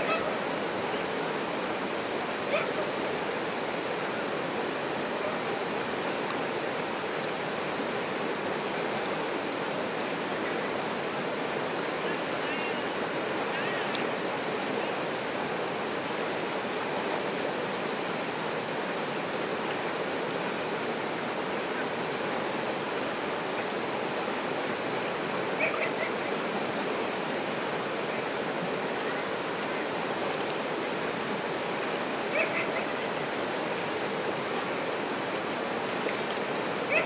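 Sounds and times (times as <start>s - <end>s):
water rushing over boulders: 0.0s - 37.0s
faint high-pitched calls: 25.6s - 26.3s.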